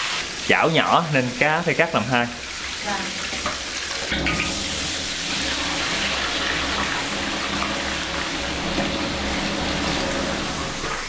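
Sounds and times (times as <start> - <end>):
potatoes deep-frying in oil: 0.0 - 11.0.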